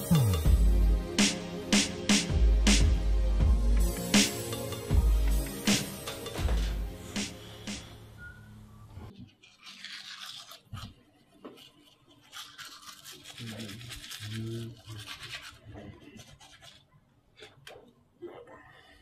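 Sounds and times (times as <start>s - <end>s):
toothbrush scrubbing teeth: 9.1s - 17.8s.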